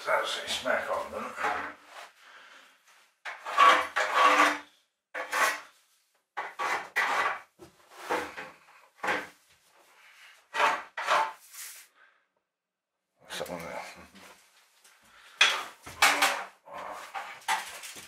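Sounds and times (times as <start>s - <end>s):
scraping and rubbing on wood: 0.5s - 2.1s, 3.2s - 5.8s, 6.4s - 9.4s, 10.2s - 11.9s.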